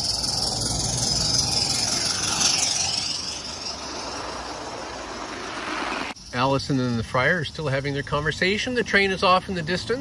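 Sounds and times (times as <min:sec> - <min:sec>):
wheels rumbling on rail: 0:00.0 - 0:06.2.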